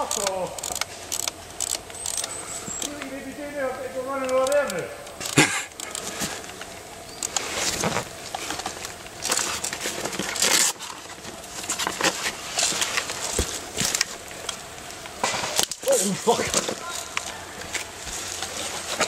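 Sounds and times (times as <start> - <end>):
footsteps on forest floor: 0.0 - 19.0
clothing and gear rustling: 4.0 - 19.0
clicks: 4.1 - 9.8.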